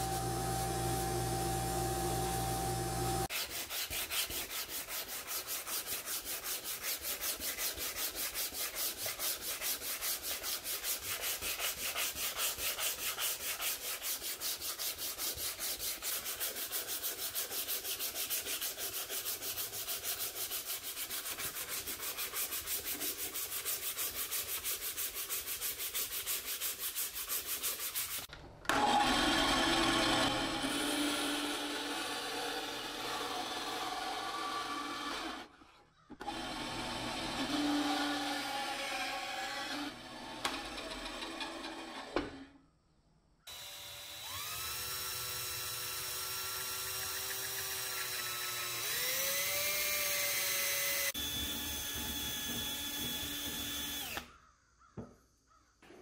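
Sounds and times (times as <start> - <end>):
belt grinder motor running: 0.0 - 3.3, 43.5 - 54.3
bandsaw running: 0.0 - 9.6, 28.7 - 35.5, 36.2 - 42.1, 43.5 - 54.3
sandpaper sanding wood: 2.2 - 28.3, 45.4 - 54.2.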